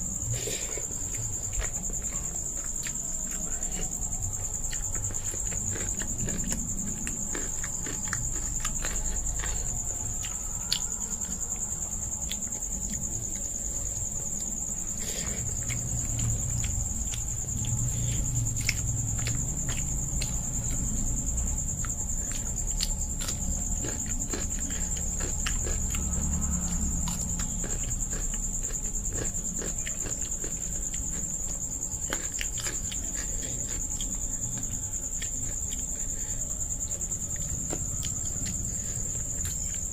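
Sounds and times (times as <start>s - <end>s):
insects trilling: 0.0s - 39.9s
chewing: 0.2s - 39.9s.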